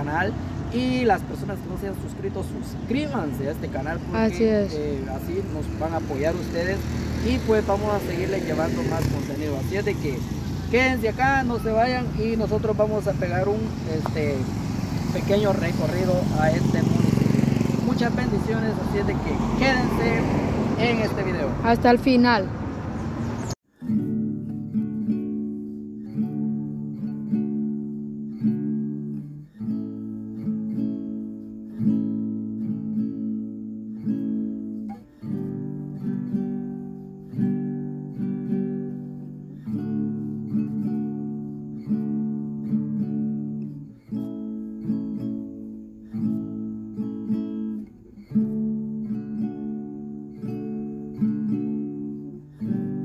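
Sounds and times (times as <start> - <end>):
acoustic guitar strumming chords: 23.7 - 53.0.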